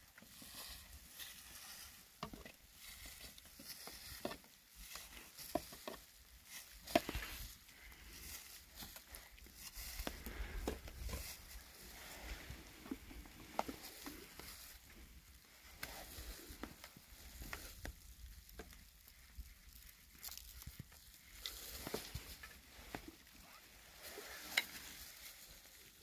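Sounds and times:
wood fire crackling: 0.0 - 26.0.

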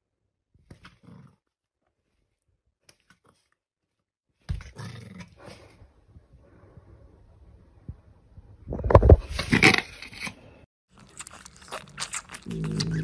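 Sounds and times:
puppy growling: 11.8 - 13.0.

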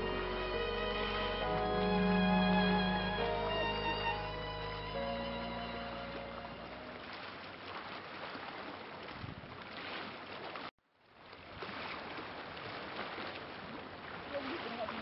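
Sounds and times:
wind and sea water hiss: 14.0 - 15.0.

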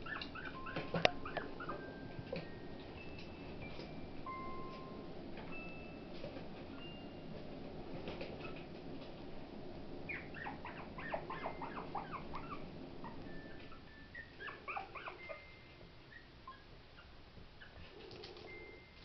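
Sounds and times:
puppy whimpering: 0.0 - 2.5, 10.1 - 18.8.

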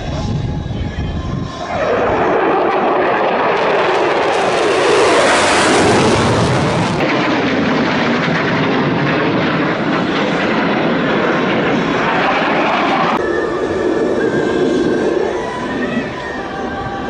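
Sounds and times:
jet engines roaring overhead: 0.0 - 17.0.

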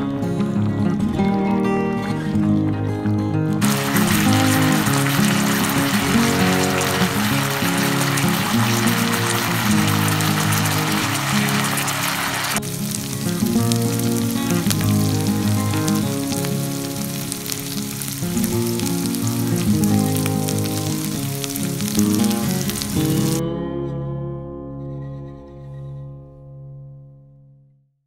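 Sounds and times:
background music: 0.0 - 24.9
food sizzling in grill pan: 3.6 - 23.4.

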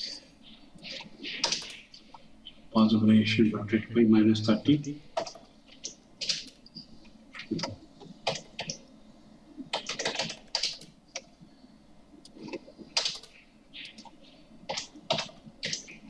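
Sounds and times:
typing on computer keyboard: 7.6 - 8.8, 9.7 - 11.3, 12.5 - 14.1, 14.7 - 16.0.

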